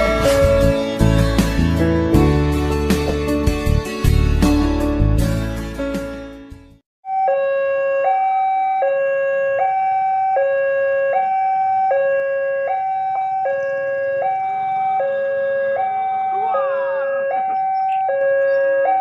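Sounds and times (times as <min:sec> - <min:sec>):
level crossing two-tone alarm: 0:07.0 - 0:19.0.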